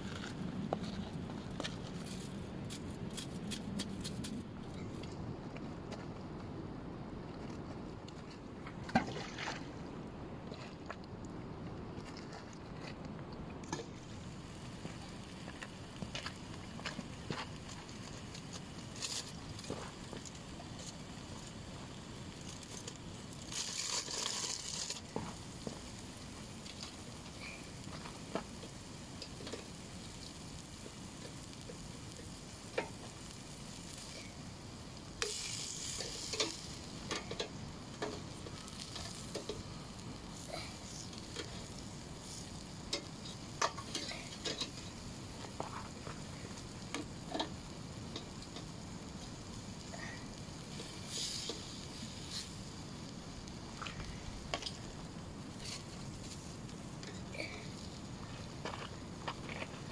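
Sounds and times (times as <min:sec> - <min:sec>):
steaks sizzling on a grill: 0:17.9 - 0:59.1.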